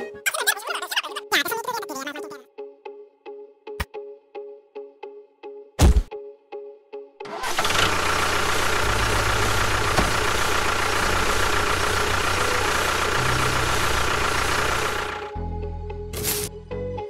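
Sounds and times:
tractor engine running: 7.3 - 15.4.

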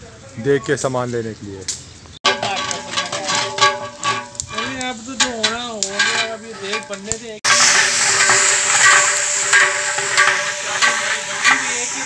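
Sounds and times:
onions sizzling in hot oil: 3.8 - 12.0.

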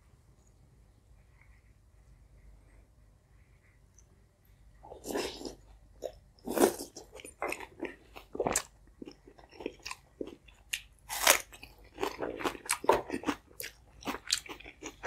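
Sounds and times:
wet chewing: 5.0 - 15.0.

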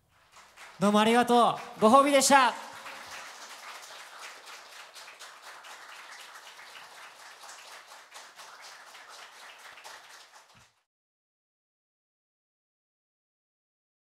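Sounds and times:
audience clapping: 0.0 - 10.9.

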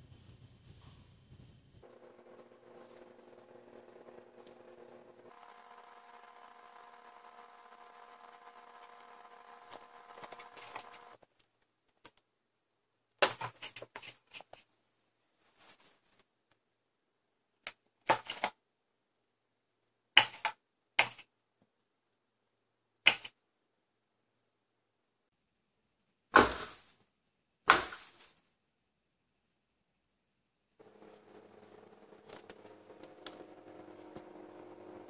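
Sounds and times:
faint steady hum: 0.0 - 11.2, 30.8 - 35.0
cats scratching cardboard: 1.8 - 11.2, 30.8 - 35.0.

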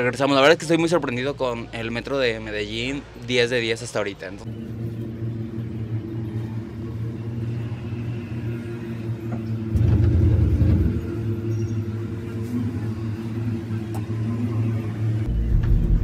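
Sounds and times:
low rumble: 4.4 - 14.3
cable car cabin humming drone: 4.4 - 16.0.

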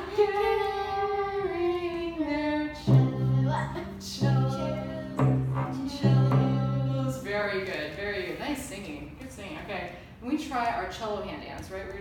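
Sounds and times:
cello bowed strokes: 0.0 - 7.6
person singing a sliding note: 2.8 - 7.2.

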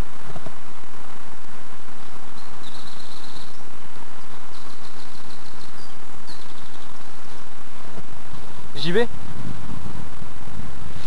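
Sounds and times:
background hiss: 0.0 - 11.0
small bird trilling: 2.4 - 7.5.

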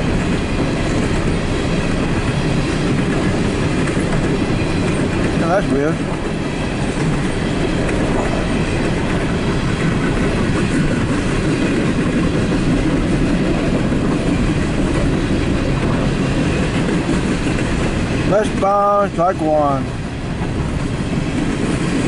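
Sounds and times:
train wheels rumbling on rails: 0.0 - 22.0.

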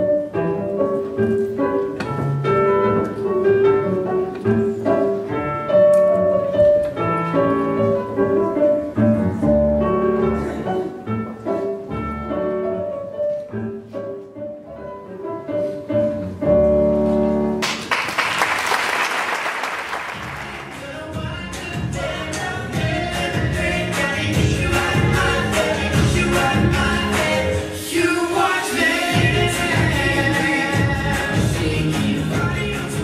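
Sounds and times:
classical piano music: 0.0 - 17.6
audience applause: 17.6 - 20.9.

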